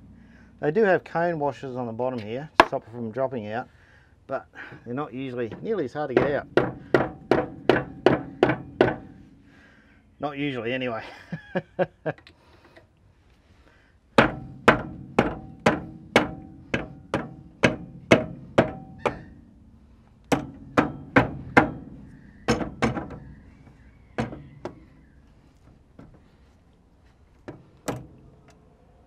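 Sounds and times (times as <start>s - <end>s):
hammer striking steel: 14.2s - 19.3s, 20.3s - 23.4s.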